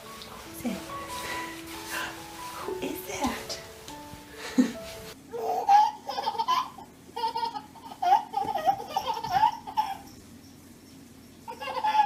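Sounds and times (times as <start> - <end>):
baby laughing: 5.3 - 10.1, 11.5 - 12.0.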